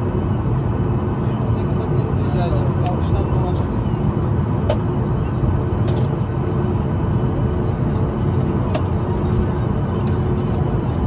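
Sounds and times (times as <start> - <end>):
jet engines idling rumble: 0.0 - 11.0.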